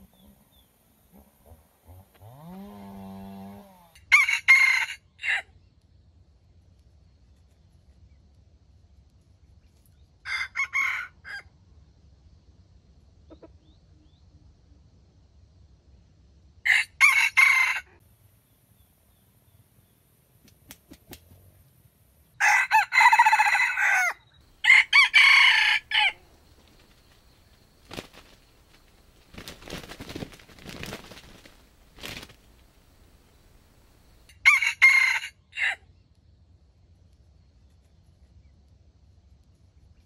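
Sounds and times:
rooster crowing: 0:02.3 - 0:05.5, 0:10.2 - 0:11.5, 0:16.7 - 0:18.0, 0:22.4 - 0:26.6, 0:34.2 - 0:35.8
soft rustling: 0:26.1 - 0:34.2.

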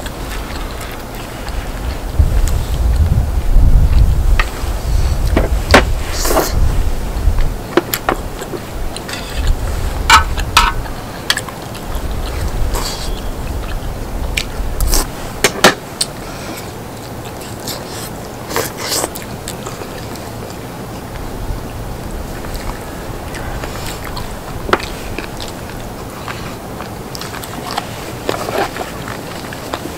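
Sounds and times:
low rumble: 0:00.0 - 0:07.6
person chewing food: 0:00.0 - 0:15.2, 0:16.0 - 0:21.2, 0:22.3 - 0:29.9.

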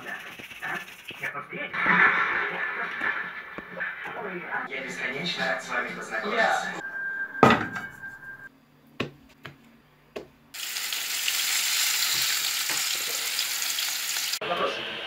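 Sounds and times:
short beep-like tone: 0:06.8 - 0:08.5
fish frying in hot oil: 0:10.6 - 0:14.4.

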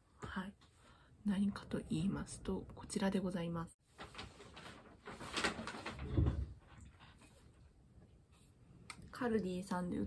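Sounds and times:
clothing rustling: 0:03.8 - 0:08.6.

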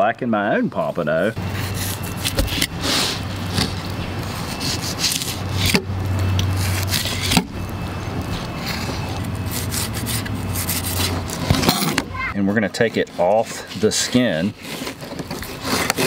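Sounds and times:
knife sawing through fish: 0:04.3 - 0:05.7, 0:08.5 - 0:11.7, 0:13.3 - 0:16.0.

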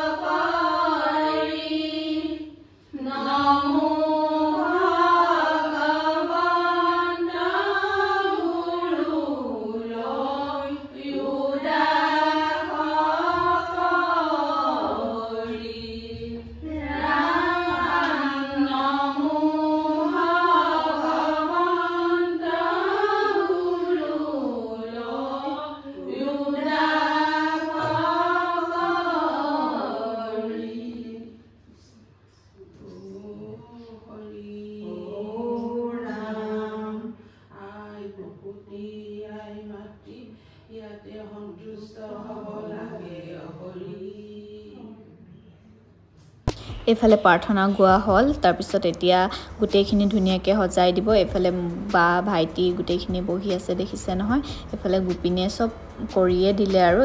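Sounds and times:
person singing a prayer: 0:27.5 - 0:31.2, 0:32.7 - 0:37.1.

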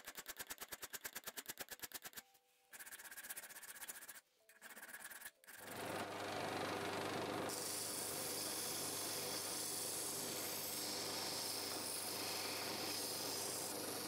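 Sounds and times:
sanding disc grinding metal: 0:07.6 - 0:14.0.

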